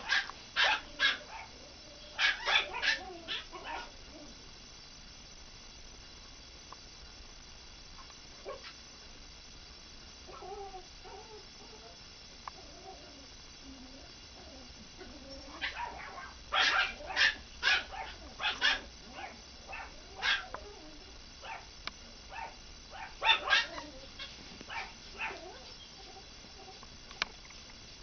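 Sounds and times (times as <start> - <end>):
puppies yipping and barking: 0.0 - 3.9, 15.0 - 20.8, 22.3 - 26.8.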